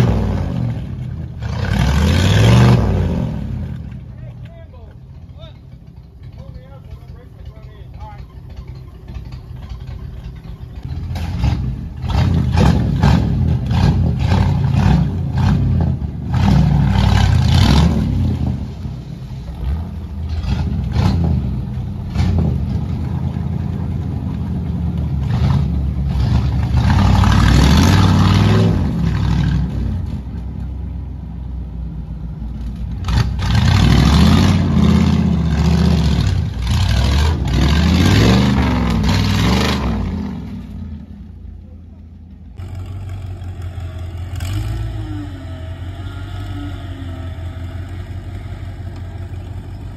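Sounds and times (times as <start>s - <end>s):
pickup truck engine revving hard: 0.0s - 3.8s, 11.2s - 18.6s, 25.2s - 30.0s, 33.0s - 40.6s
spinning tyres throwing mud: 4.8s - 31.3s, 32.3s - 41.1s.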